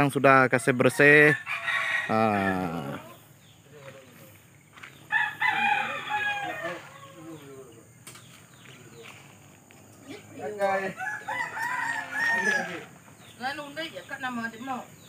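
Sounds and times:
rooster crowing: 0.9s - 3.2s, 5.1s - 7.6s, 10.6s - 13.0s.

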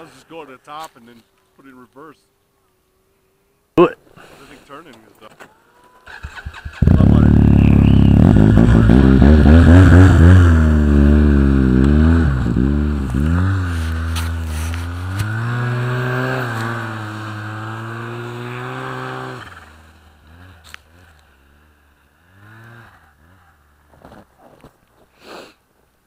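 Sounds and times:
snowmobile engine pulling away: 5.8s - 24.2s.

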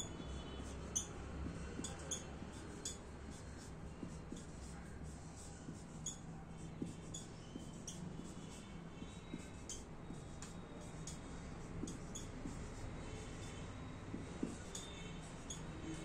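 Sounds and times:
faint low room hum: 0.0s - 16.0s
whiteboard marker squeaking: 0.0s - 16.0s.

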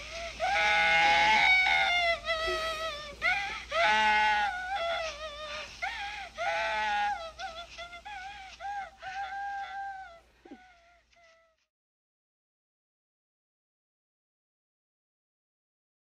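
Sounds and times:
small child crying: 0.0s - 11.6s.

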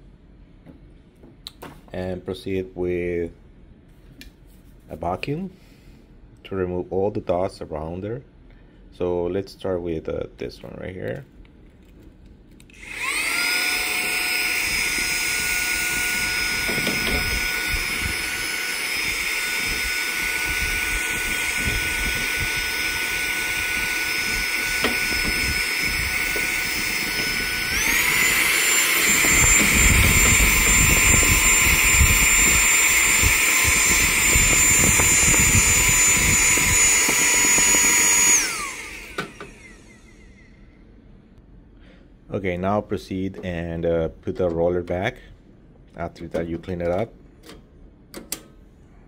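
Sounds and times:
handheld vacuum cleaner whine: 12.7s - 40.6s.

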